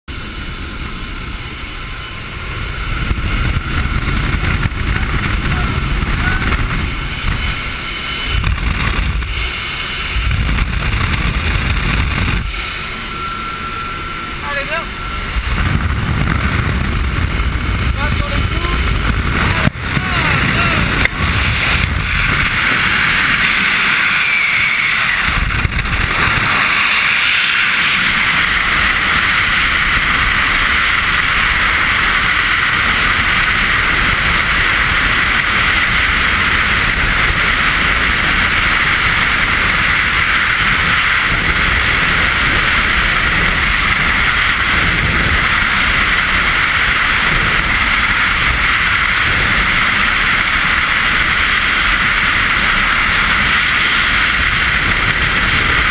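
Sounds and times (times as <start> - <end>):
wind rushing over microphone: 0.1 - 55.9.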